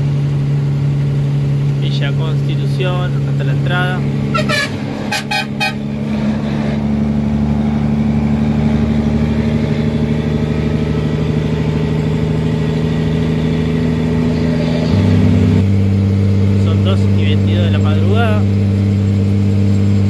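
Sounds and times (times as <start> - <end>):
truck engine droning: 0.0 - 20.0.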